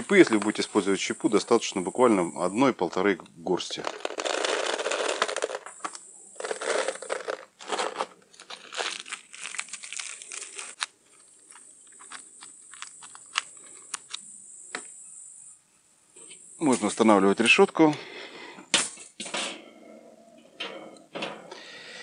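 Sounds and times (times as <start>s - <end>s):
aluminium foil crinkling: 3.6s - 14.2s.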